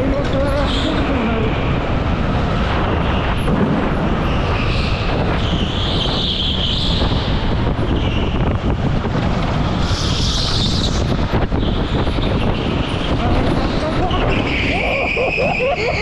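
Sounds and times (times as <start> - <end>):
go-kart engine and rolling noise: 0.0 - 16.0.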